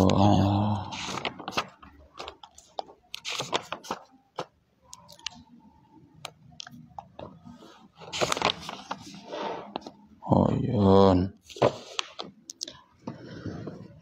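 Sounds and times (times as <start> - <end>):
book pages rustling: 0.9 - 4.5, 7.2 - 10.0.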